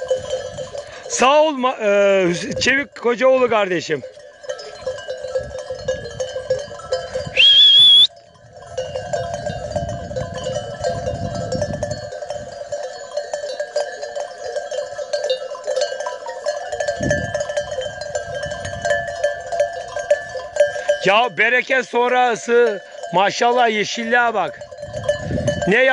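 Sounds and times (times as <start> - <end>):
sheep bells clanking: 0.0 - 25.9
high rising whistle: 7.3 - 8.1.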